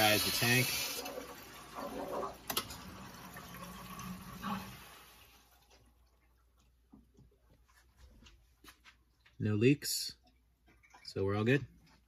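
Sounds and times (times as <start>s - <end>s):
water hissing through pipe: 0.0s - 5.5s.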